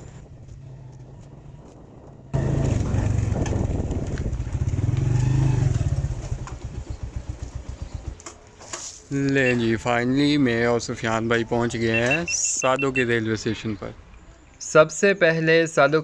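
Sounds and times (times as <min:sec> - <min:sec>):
motorcycle engine running: 0:00.0 - 0:08.4.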